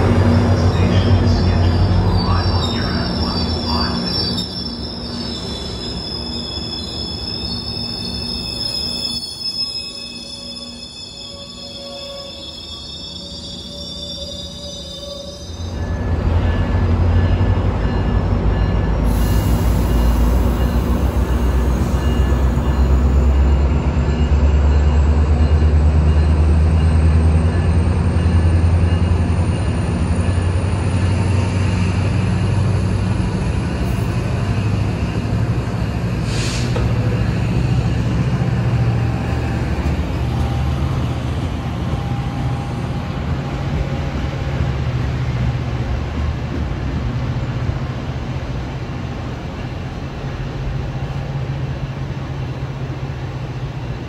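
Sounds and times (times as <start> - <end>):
train wheels rolling on rails: 15.5 - 54.0.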